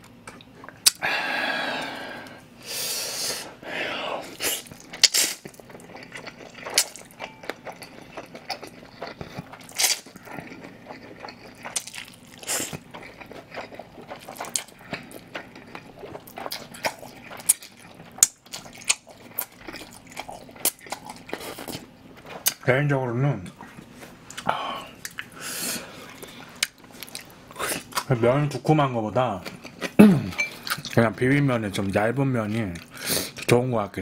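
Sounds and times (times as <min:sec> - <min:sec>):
chewing with clicks and crunches: 0:04.6 - 0:22.7, 0:23.5 - 0:28.2, 0:29.3 - 0:31.2, 0:31.8 - 0:33.6.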